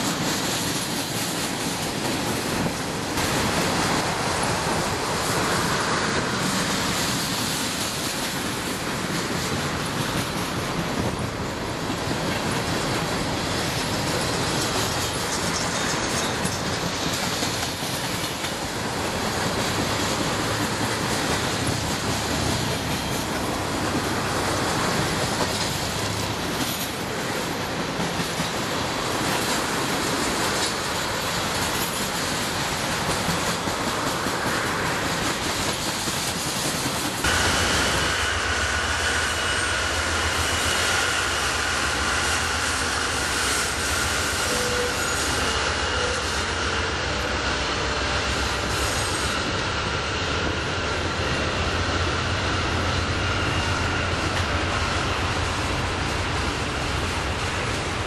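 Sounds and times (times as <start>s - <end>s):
train wheels rolling on rails: 0.0s - 58.0s
high-pitched wheel squeal: 39.0s - 47.2s.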